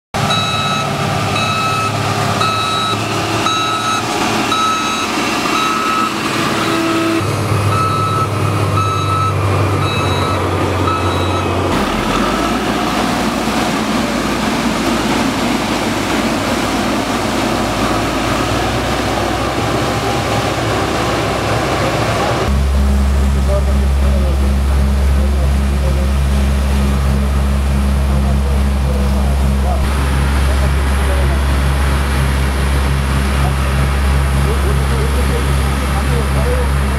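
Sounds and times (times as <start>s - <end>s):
diesel engine running: 0.1s - 36.9s
reversing alarm beeping: 0.2s - 12.7s.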